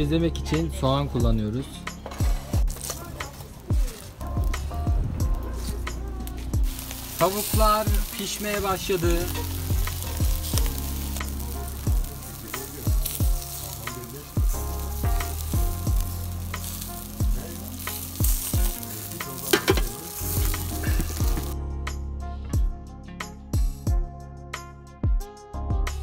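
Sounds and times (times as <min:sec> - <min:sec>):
meat sizzling on a charcoal grill: 0:02.0 - 0:21.6
bass drum hits: 0:04.2 - 0:08.1, 0:09.4 - 0:10.8, 0:14.4 - 0:16.2
deep held bass notes: 0:04.2 - 0:19.2, 0:20.2 - 0:24.9.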